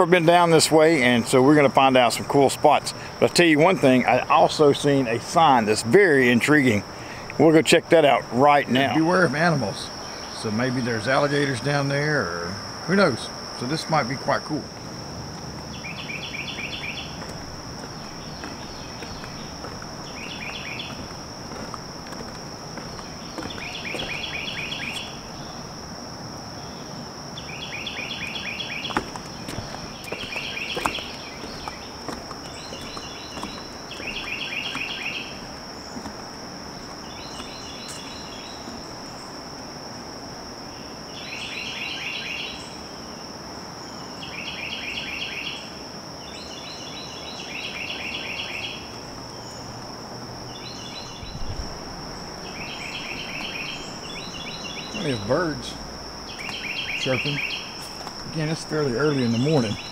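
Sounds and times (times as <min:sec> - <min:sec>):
high-pitched insect drone: 0:02.6 - 0:43.2, 0:44.0 - 0:59.9
songbird trilling: 0:15.6 - 0:25.8, 0:26.6 - 0:39.3, 0:46.3 - 0:49.8, 0:50.5 - 0:59.9.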